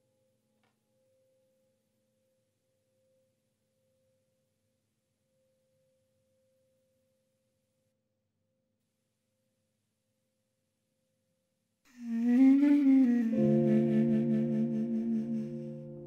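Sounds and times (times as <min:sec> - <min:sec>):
faint steady pure tone: 0:11.9 - 0:16.0.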